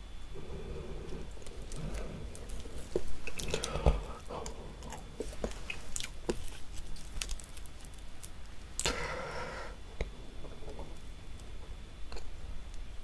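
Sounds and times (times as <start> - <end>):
chewing with sticky mouth clicks: 4.4 - 8.9.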